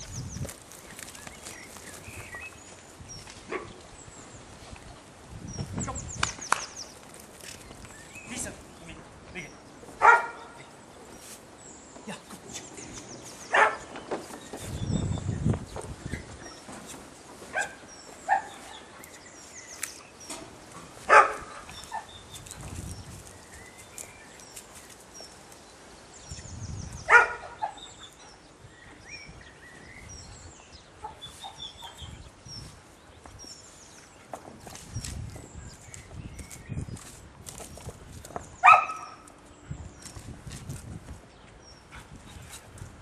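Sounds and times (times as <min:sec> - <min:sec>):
small birds chirping: 0:00.0 - 0:43.0
dog barking: 0:10.0 - 0:10.6, 0:13.5 - 0:13.8, 0:17.5 - 0:18.6, 0:21.1 - 0:21.5, 0:27.1 - 0:27.8, 0:38.6 - 0:39.2.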